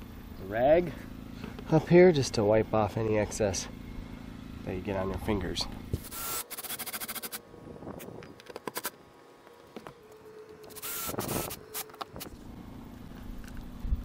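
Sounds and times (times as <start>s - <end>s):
cordless drill whirring: 5.9s - 7.4s, 9.8s - 12.3s.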